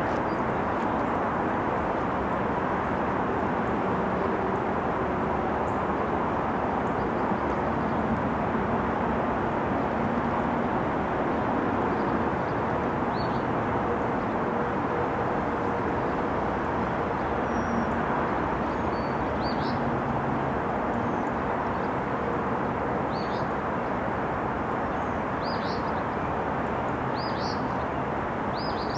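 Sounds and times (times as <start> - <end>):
small birds chirping: 27.2 - 27.8, 28.5 - 28.9.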